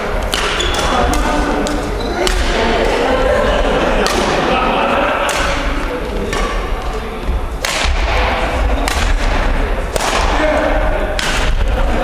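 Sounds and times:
racket striking shuttlecock: 0.2s - 3.0s, 5.2s - 7.0s, 7.6s - 8.2s, 8.8s - 10.4s, 11.1s - 11.6s.

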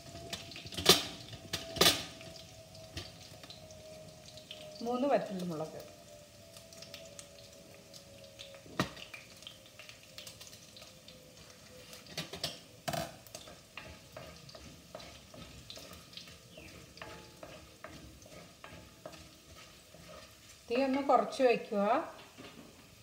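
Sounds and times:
hot oil sizzling and crackling: 0.0s - 23.0s
wooden spatula scraping: 13.4s - 21.7s.

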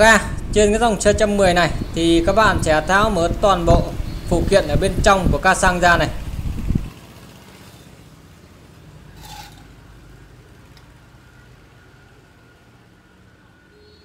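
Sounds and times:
metal parts scraping: 9.2s - 9.8s.

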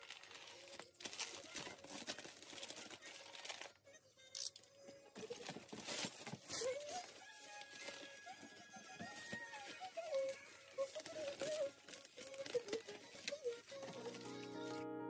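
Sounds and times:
plastic mailer bag crinkling: 0.0s - 3.8s, 5.2s - 14.8s.

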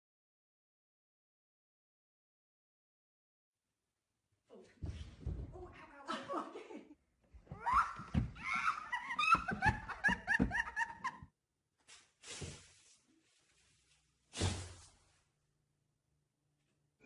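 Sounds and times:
women laughing: 6.1s - 11.3s.

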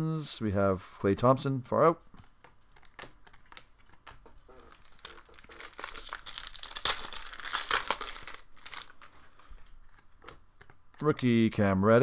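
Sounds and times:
foil wrapper tearing and crinkling: 4.5s - 9.5s.

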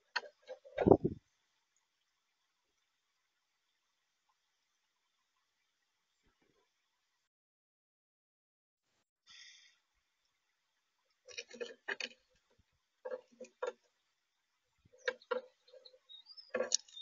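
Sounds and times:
bird pecking and cracking seed: 11.2s - 13.8s
thin rising bird chirp: 13.6s - 17.0s.

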